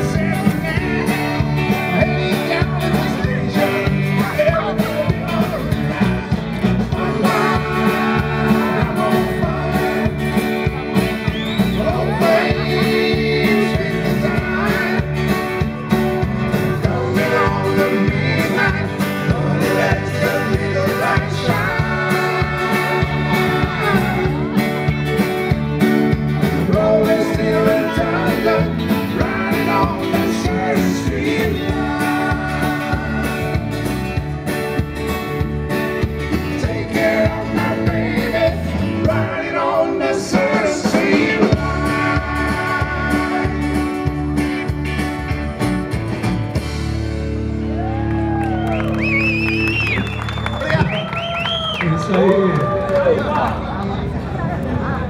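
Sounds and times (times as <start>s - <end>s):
person singing: 0.0s - 6.2s, 6.9s - 10.8s, 11.7s - 15.5s, 16.6s - 24.6s, 26.5s - 34.0s, 36.4s - 44.2s
drums: 0.0s - 51.8s
electric guitars: 0.0s - 55.0s.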